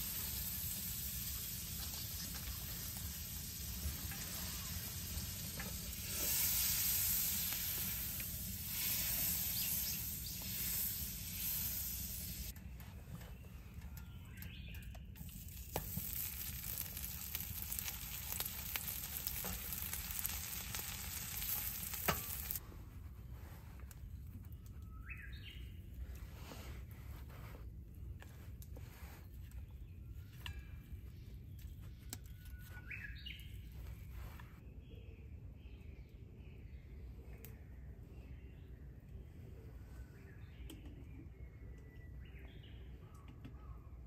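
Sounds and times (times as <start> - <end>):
butter sizzling in a frying pan: 0.0 - 12.5, 15.2 - 22.6
bread frying in a pan: 0.0 - 12.6, 15.2 - 22.6.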